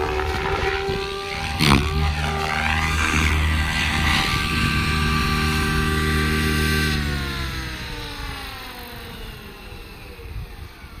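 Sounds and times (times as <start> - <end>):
rc helicopter motor spooling down: 0.0 - 11.0.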